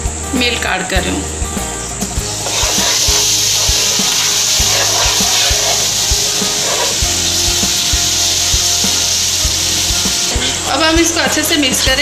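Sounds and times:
background music with steady beat: 0.0s - 12.0s
milk sizzling in a pan: 2.2s - 12.0s
spoon scraping a pan: 2.4s - 9.2s.

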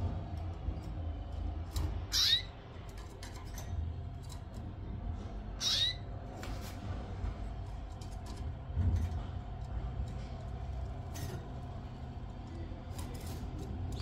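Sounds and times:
canary calling: 2.0s - 2.6s, 5.5s - 6.1s.

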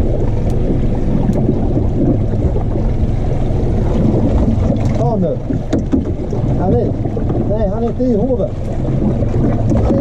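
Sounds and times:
outboard motor idling: 0.0s - 10.0s
water slapping hull: 0.0s - 10.0s
wind on microphone: 0.0s - 10.0s.

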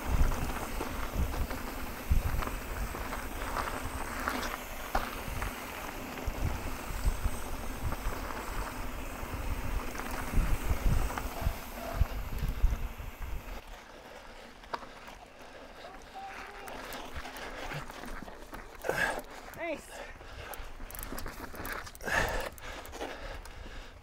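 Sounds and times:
bike tyres thumping over bumps: 0.0s - 13.6s
wind buffeting microphone: 0.0s - 13.6s.

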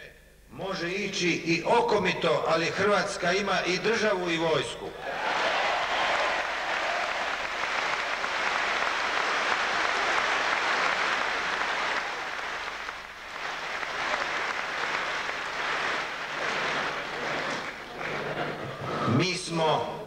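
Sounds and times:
audience applauding: 5.0s - 19.3s.

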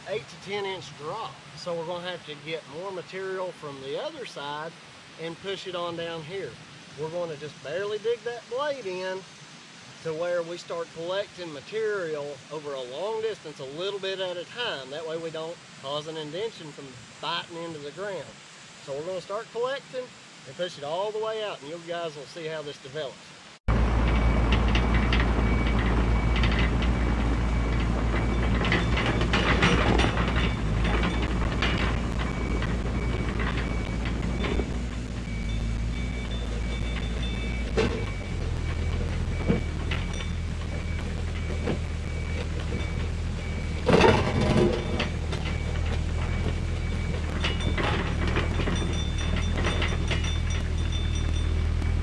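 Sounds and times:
dirt scraping: 23.7s - 52.0s
excavator diesel engine running: 23.7s - 52.0s
tracks clanking and rattling: 23.7s - 52.0s.

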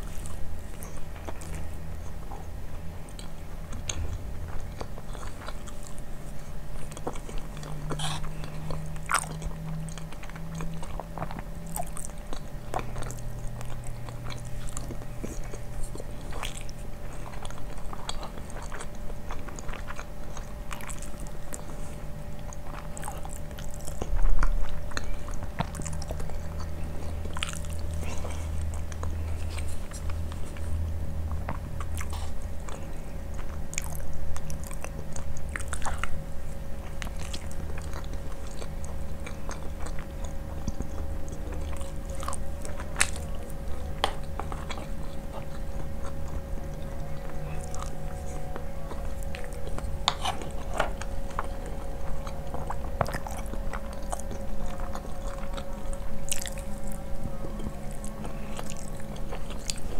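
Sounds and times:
chewing and wet mouth clicks: 0.0s - 59.9s
low steady hum: 0.0s - 59.9s.

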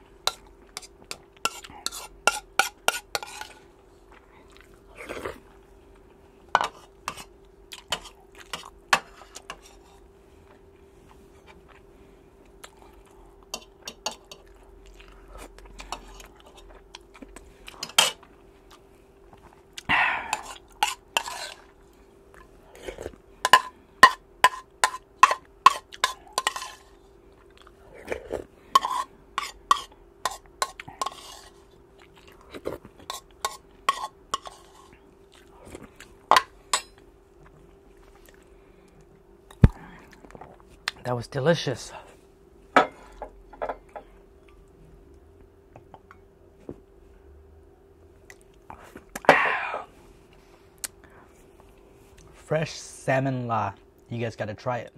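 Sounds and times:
chewing: 4.1s - 5.6s, 7.7s - 8.8s, 12.5s - 20.8s, 27.3s - 28.5s, 31.9s - 33.4s, 34.9s - 36.2s, 37.3s - 39.0s.

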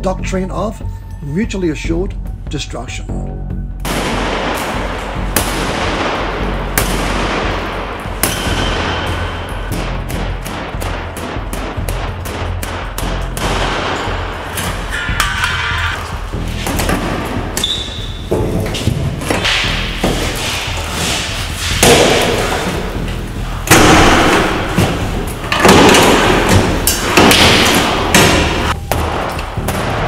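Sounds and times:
heavy metal bangs echoing: 3.8s - 30.0s.

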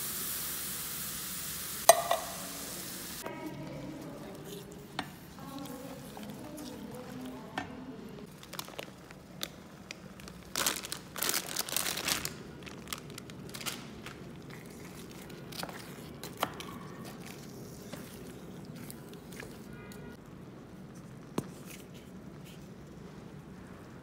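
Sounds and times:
wooden spoon stirring sauce: 3.3s - 8.3s, 14.2s - 23.0s
plastic bag crinkling: 8.3s - 15.6s.

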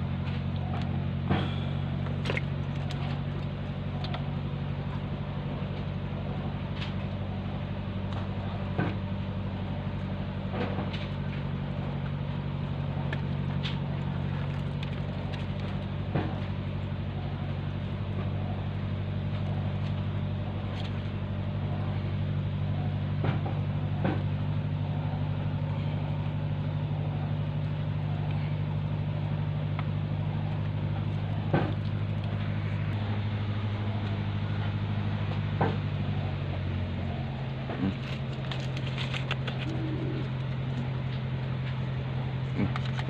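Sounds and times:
motor humming: 0.0s - 43.0s.

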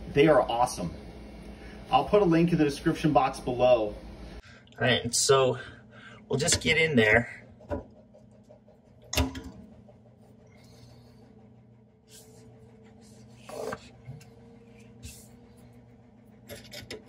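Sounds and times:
screwdriver scraping metal nut: 16.5s - 17.0s.

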